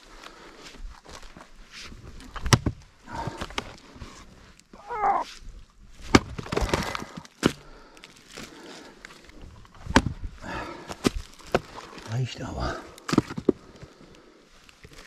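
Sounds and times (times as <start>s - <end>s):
axe chopping firewood: 2.4s - 3.7s, 6.0s - 7.7s, 9.8s - 10.2s, 10.9s - 11.8s, 13.0s - 13.6s
split wood clattering: 6.0s - 7.6s.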